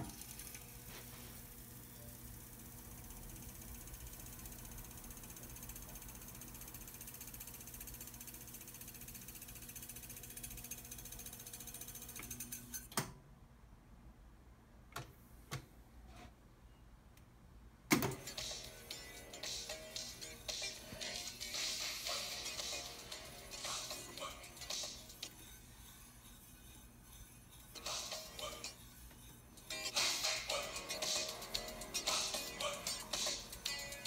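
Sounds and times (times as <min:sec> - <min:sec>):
tape deck fast-winding whirr: 0:00.0 - 0:12.7, 0:18.0 - 0:34.0
tape deck clunk: 0:17.9 - 0:18.3.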